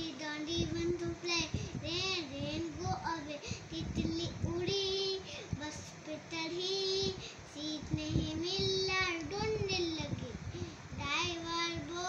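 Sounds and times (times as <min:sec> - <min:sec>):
young boy singing: 0:00.0 - 0:12.0.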